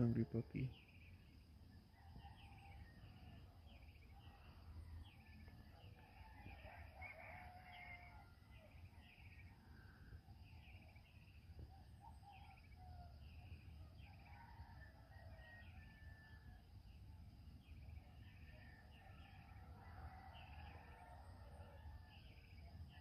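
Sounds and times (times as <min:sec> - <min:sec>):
distant rooster crowing: 0:01.9 - 0:03.4, 0:04.1 - 0:09.6, 0:14.0 - 0:16.8, 0:18.2 - 0:23.0.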